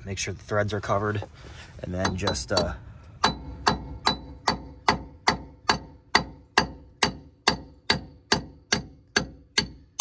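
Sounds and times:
hammer striking metal: 2.0s - 10.0s.

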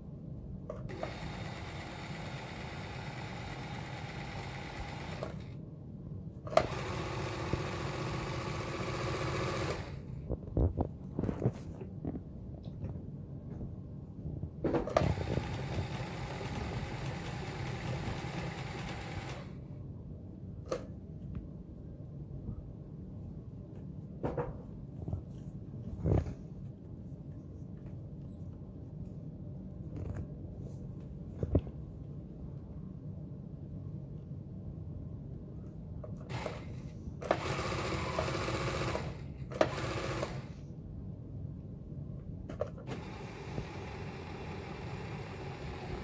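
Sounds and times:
sewing machine running: 0.9s - 5.6s, 6.5s - 10.0s, 14.9s - 19.6s, 36.3s - 40.6s, 42.9s - 46.0s.

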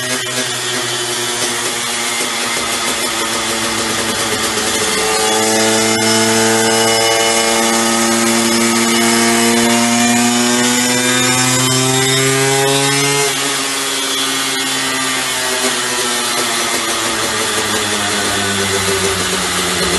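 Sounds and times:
two-stroke motorcycle engine revving: 0.0s - 19.9s.

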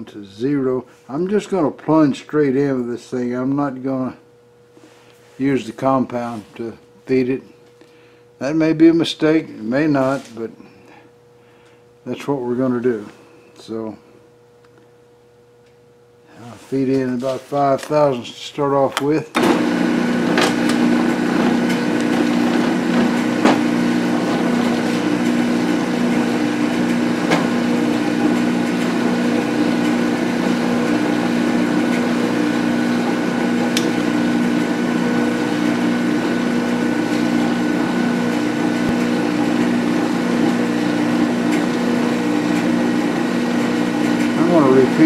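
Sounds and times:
metal lathe running: 19.4s - 45.0s.

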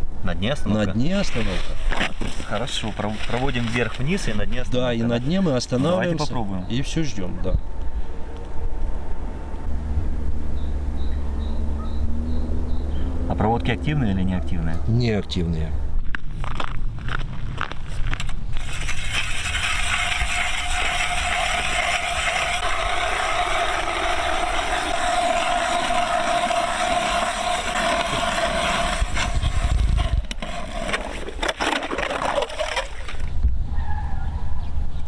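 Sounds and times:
ice auger grinding through ice: 1.2s - 4.6s, 18.1s - 33.3s.

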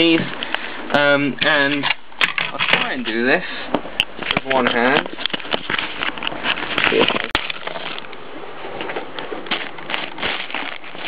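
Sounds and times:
camera handling rustle: 4.0s - 8.2s.

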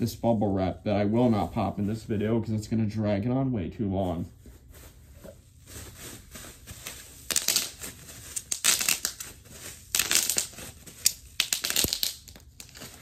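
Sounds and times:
packing material crinkling: 4.0s - 13.0s.

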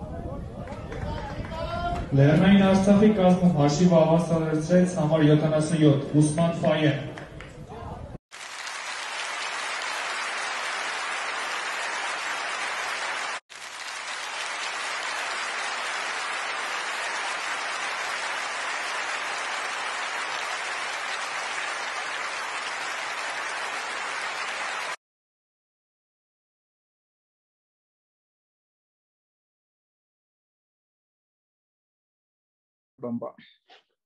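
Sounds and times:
large audience applauding: 8.3s - 25.0s.

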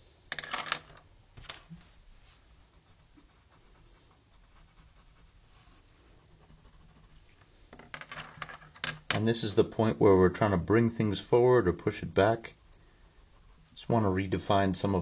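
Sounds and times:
colored pencil scratching on paper: 2.2s - 7.6s, 9.6s - 15.0s.

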